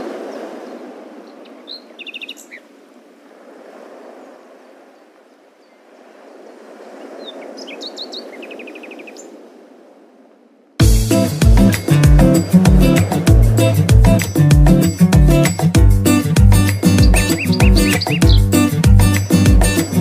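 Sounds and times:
small birds chirping: 1.2 - 2.7, 7.0 - 9.4, 16.5 - 19.8.

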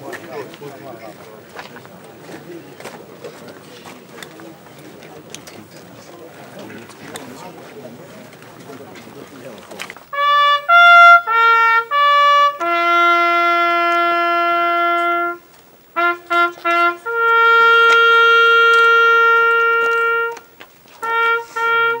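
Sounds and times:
solo trumpet bugle call: 10.1 - 22.0.

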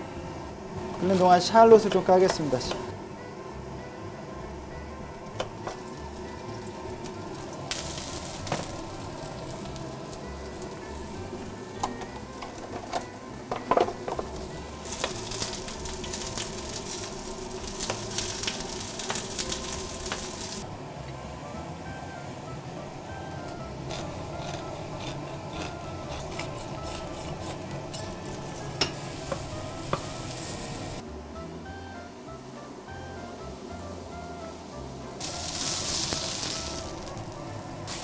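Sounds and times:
background music: 0.0 - 38.0
shallots sizzling in oil: 5.5 - 20.6, 28.4 - 31.0, 35.2 - 38.0.

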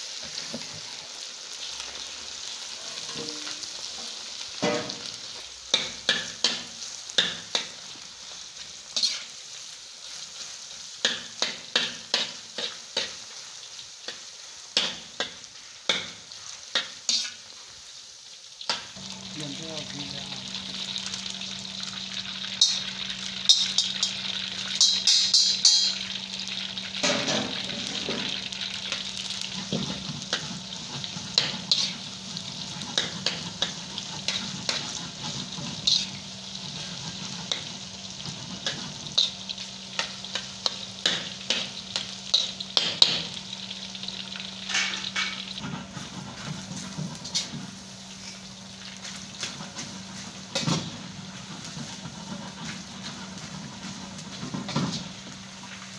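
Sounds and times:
food deep-frying in oil: 0.0 - 55.9
metal strainer scraping a wok: 29.5 - 37.6.

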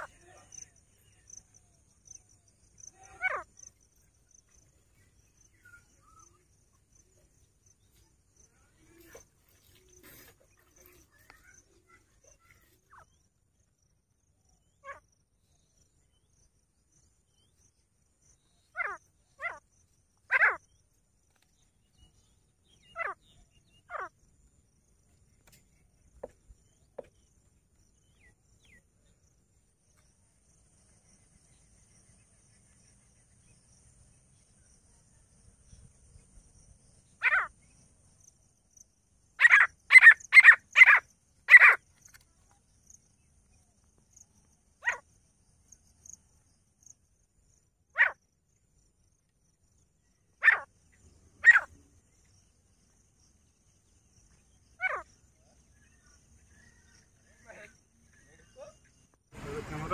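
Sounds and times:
francolin calling: 21.8 - 24.2, 39.3 - 43.3, 50.2 - 52.9, 53.8 - 59.9.

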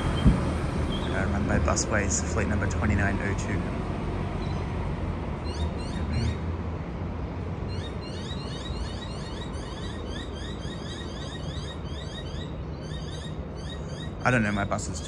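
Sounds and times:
birds chirping: 0.0 - 3.6, 4.4 - 15.0
bus driving away: 0.0 - 11.6.

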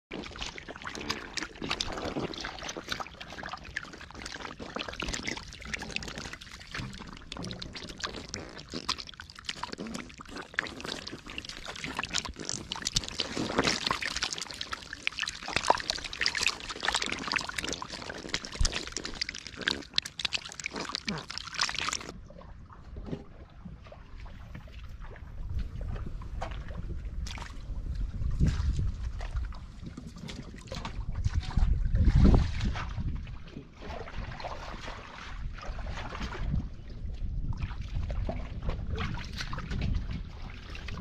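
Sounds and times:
catfish splashing in shallow water: 0.1 - 22.2.

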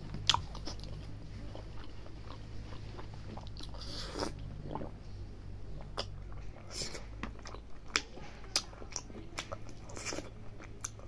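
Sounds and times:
wet chewing and lip smacks: 0.1 - 5.0
sipping from a plastic cup: 3.7 - 4.5.

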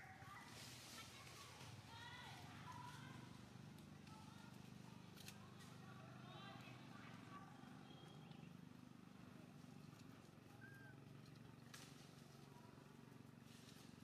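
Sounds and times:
faint squeak: 10.5 - 11.1.

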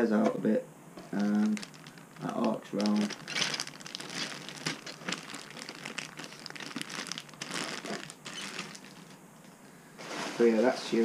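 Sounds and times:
plastic bag crinkling: 1.1 - 9.2.

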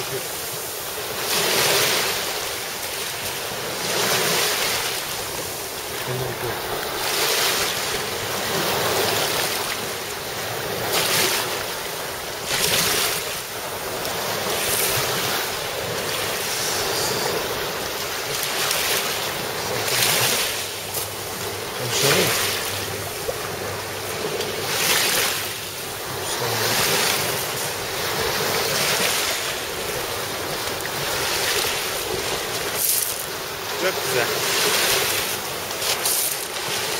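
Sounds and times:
small waves breaking on shore: 0.0 - 36.9
wind on microphone: 13.8 - 18.5.

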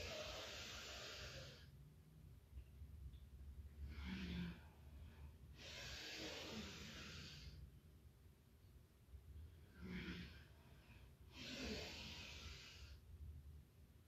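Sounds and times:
woman breathing: 0.0 - 1.9, 3.6 - 7.8, 9.2 - 13.4.

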